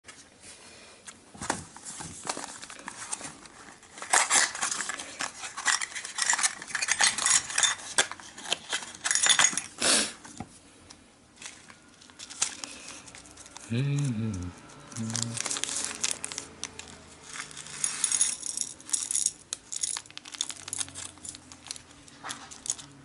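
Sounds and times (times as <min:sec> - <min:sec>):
metal objects clinking on table: 0:08.7 - 0:09.7.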